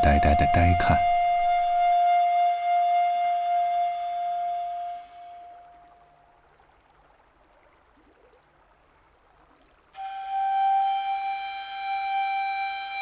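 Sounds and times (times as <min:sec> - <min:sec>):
sustained flute note: 0:00.0 - 0:05.9, 0:10.0 - 0:13.0.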